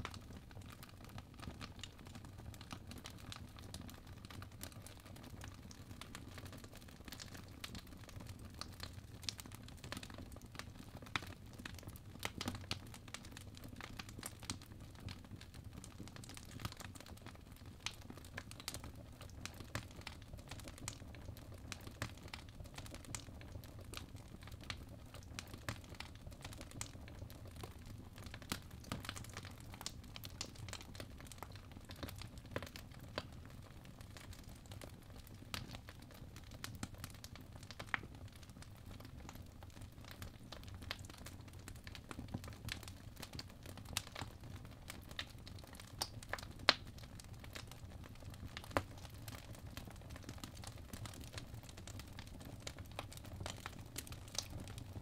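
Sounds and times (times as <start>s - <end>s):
fireplace fire crackling: 0.0s - 55.0s.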